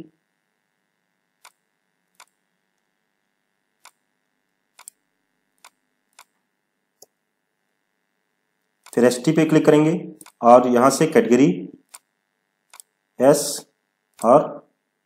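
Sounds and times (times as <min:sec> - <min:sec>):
mouse and keyboard clicks: 0:02.2 - 0:02.4, 0:04.8 - 0:05.0, 0:12.7 - 0:12.9.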